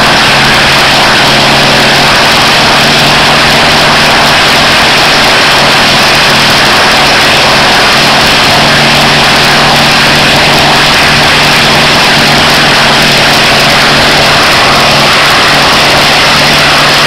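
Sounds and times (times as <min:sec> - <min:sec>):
radial aircraft engine and propeller: 0:00.0 - 0:17.0.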